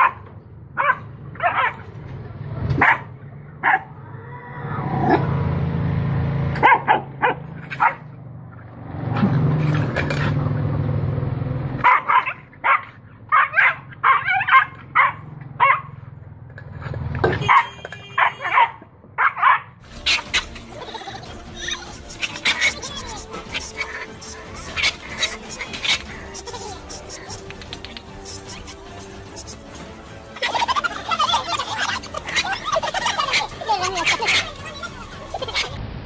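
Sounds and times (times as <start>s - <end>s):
puppy barking and yipping: 0.0s - 1.9s, 2.8s - 3.9s, 6.6s - 8.1s, 11.8s - 16.0s, 17.4s - 29.6s, 30.3s - 35.8s.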